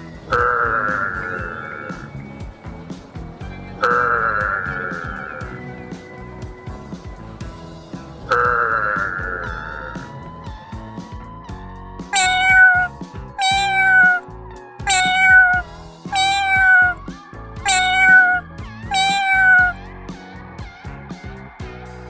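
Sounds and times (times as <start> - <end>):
background music with beat: 0.0 - 22.0
cat meowing: 0.3 - 2.2, 12.1 - 14.2, 14.8 - 19.8.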